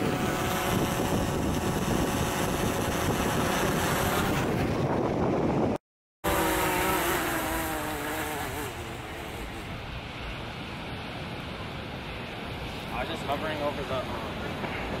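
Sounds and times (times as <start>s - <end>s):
drone propellers whining: 0.0s - 5.3s, 6.3s - 10.0s.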